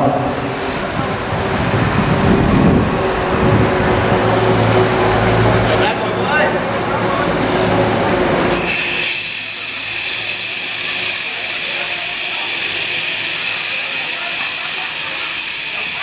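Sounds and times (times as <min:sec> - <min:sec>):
gas hissing from cylinder valve: 0:08.5 - 0:16.0.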